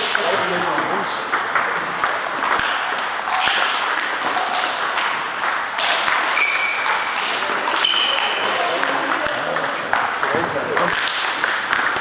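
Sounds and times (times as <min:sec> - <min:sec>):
ping pong ball clicking off paddles: 0:00.0 - 0:12.0
hall background noise: 0:07.0 - 0:12.0.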